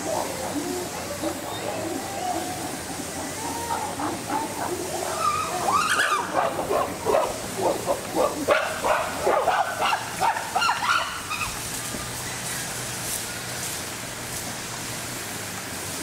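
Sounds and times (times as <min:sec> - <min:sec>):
chimpanzees yelping calls: 0:00.0 - 0:11.6.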